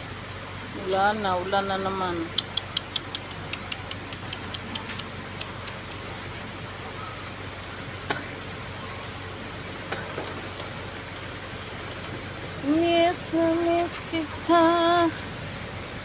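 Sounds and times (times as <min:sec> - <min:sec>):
rain hissing: 0:00.0 - 0:16.0
sharp ticks: 0:02.2 - 0:06.2.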